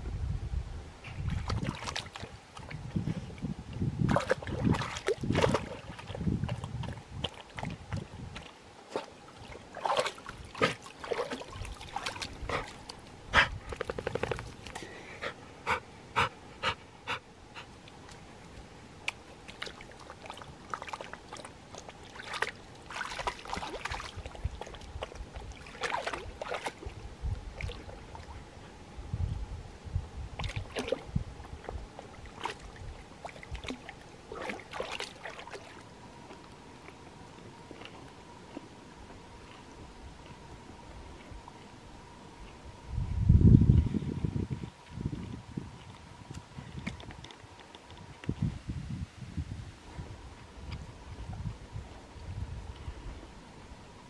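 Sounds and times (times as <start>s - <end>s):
dog splashing in water: 1.3s - 2.8s, 4.1s - 13.1s, 19.4s - 27.0s, 30.4s - 31.1s, 32.3s - 35.8s.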